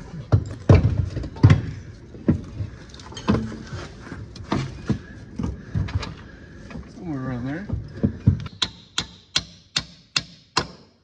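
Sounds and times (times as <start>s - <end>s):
metal clunks and knocks: 0.2s - 3.7s.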